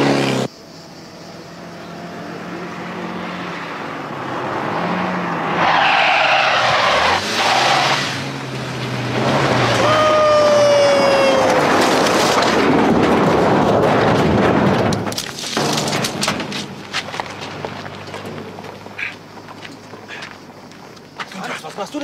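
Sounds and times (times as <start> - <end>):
car engine accelerating: 0.0 - 15.0
tyres skidding: 1.2 - 22.0
bump: 6.5 - 19.3.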